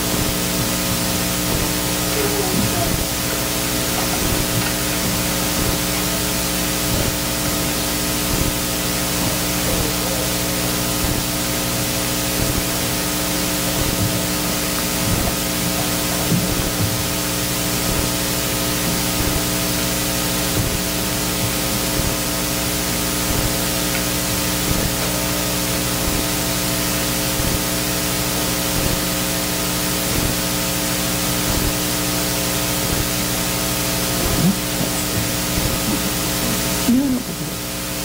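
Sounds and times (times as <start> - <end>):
electrical hum: 0.0 - 38.0
steady hiss: 0.0 - 38.0.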